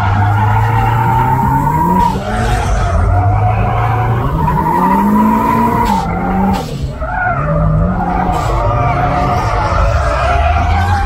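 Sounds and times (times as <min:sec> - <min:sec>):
car engine revving: 0:00.0 - 0:11.0
tyre squeal: 0:00.0 - 0:11.0.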